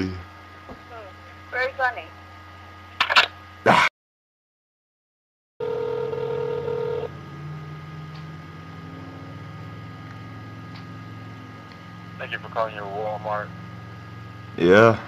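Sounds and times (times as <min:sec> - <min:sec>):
low telephone line hum: 0:00.0 - 0:03.6, 0:05.6 - 0:15.0
telephone ringing tone: 0:05.6 - 0:07.1.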